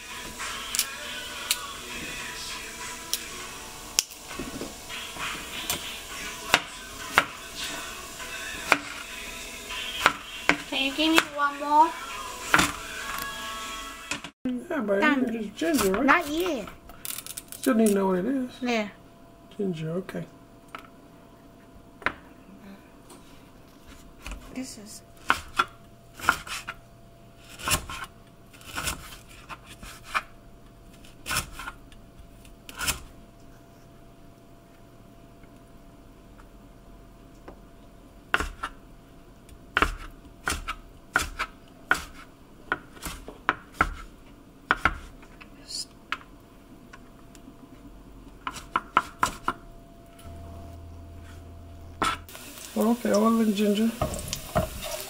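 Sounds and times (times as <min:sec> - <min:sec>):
knife chopping on cutting board: 0:08.6 - 0:09.0, 0:10.0 - 0:11.3, 0:12.4 - 0:12.9, 0:25.2 - 0:26.7, 0:38.3 - 0:38.8, 0:39.7 - 0:44.1, 0:44.7 - 0:45.1, 0:48.4 - 0:49.6, 0:52.0 - 0:52.2.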